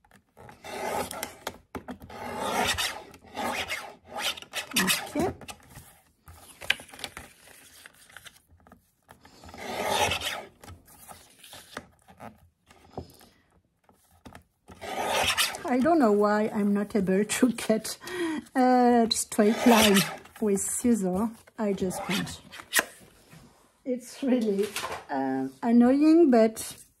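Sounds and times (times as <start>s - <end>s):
paper trimmer blade sliding: 0.5s - 5.3s, 9.4s - 10.6s, 14.7s - 15.9s, 19.4s - 20.4s.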